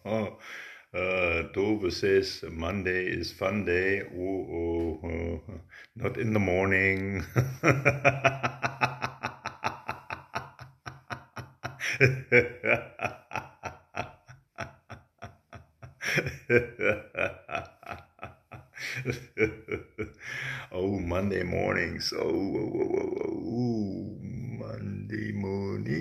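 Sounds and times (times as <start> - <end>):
man laughing heartily: 7.2 - 21.2.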